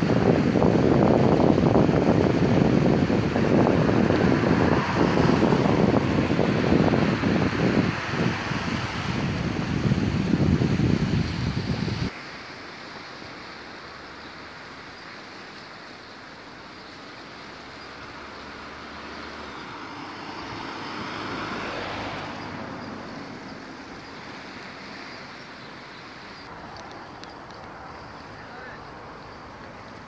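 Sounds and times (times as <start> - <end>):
road traffic noise: 0.0 - 30.0
vehicle passing: 2.6 - 9.5, 17.6 - 30.0.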